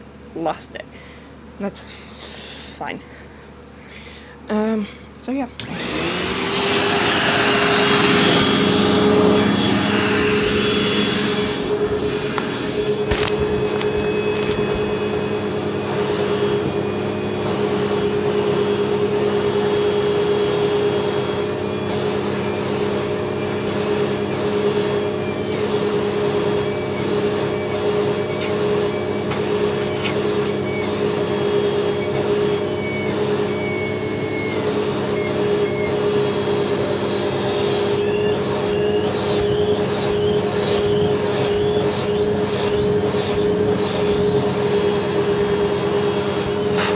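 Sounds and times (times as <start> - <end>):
vacuum cleaner running: 5.6 - 46.9
high whistle: 10.0 - 25.8, 26.5 - 36.0, 37.2 - 46.9.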